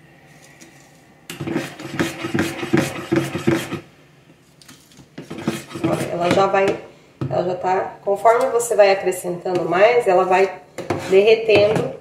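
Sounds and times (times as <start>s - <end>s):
metal spoon stirring in bowl: 1.3s - 3.8s, 5.2s - 6.6s, 9.5s - 11.9s.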